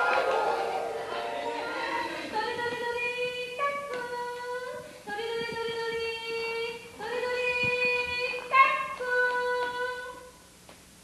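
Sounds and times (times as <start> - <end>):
harmonica slow melody: 0.0 - 2.3.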